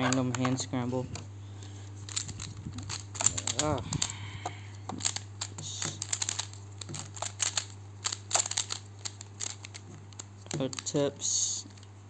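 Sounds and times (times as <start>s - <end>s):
steady low hum: 0.0s - 12.0s
plastic puzzle pieces clicking: 2.1s - 11.0s.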